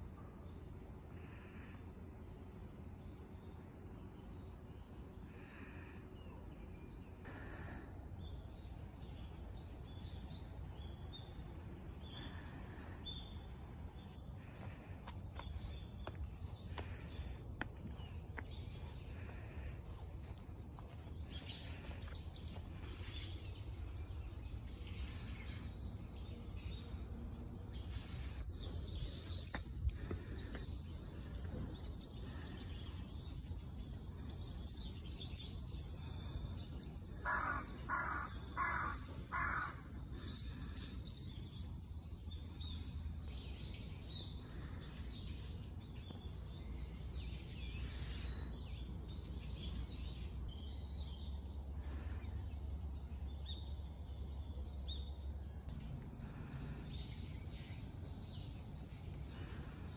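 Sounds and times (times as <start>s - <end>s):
low background rumble: 0.0s - 59.9s
crow cawing: 37.2s - 39.9s.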